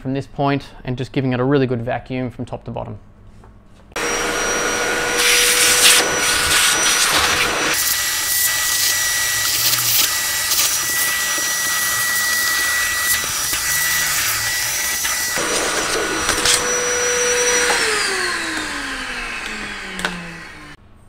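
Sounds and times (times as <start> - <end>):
vacuum cleaner running: 4.0 - 20.8.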